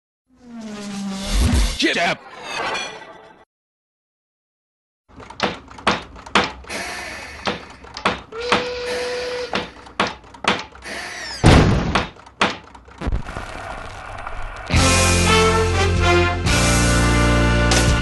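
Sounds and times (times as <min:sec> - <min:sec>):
cartoon knocks and clanks: 0:05.1 - 0:08.8, 0:09.5 - 0:13.2
squeaky falling sounds: 0:10.8 - 0:12.1.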